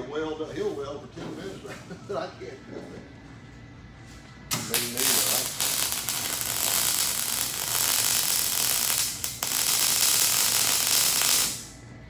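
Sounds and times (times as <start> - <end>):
welding arc crackling: 4.5 - 11.8.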